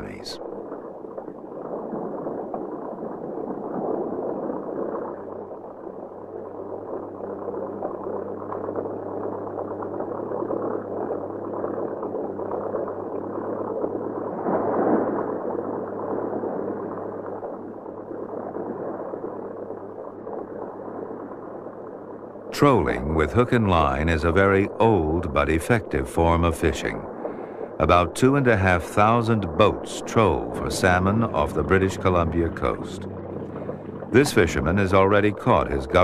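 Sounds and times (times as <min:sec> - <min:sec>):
water noise: 0:00.0 - 0:36.0
boat engine running: 0:22.2 - 0:36.0.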